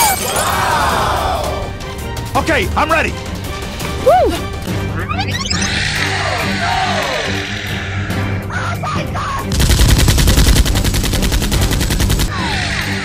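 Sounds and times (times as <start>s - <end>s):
background music: 0.0s - 13.0s
automatic gunfire: 9.5s - 12.3s.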